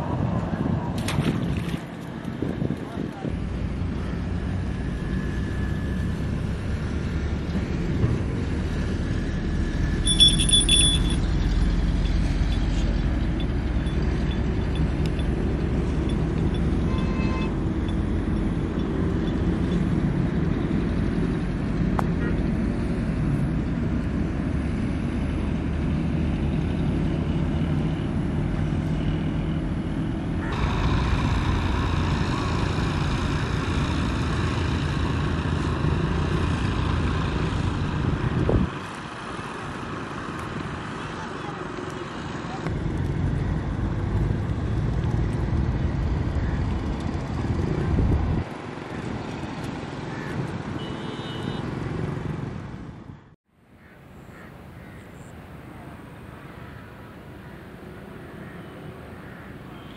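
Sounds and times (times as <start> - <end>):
engine running with low drone: 0.0 - 59.9
brief high-pitched tone: 10.1 - 11.3.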